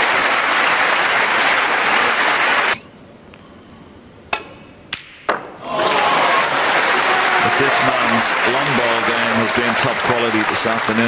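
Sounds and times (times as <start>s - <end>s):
audience applauding: 0.0s - 2.8s, 5.7s - 11.0s.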